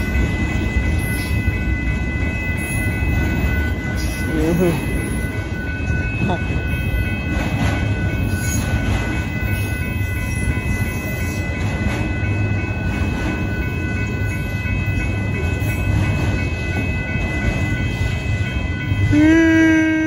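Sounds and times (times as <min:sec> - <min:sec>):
crossing warning bell ringing: 0:00.0 - 0:20.0
freight train rumbling past: 0:00.0 - 0:20.0.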